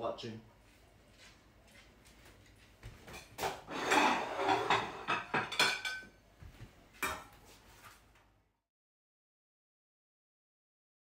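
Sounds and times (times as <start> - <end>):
plate and spatula clattering: 3.1 - 6.1, 7.0 - 7.3.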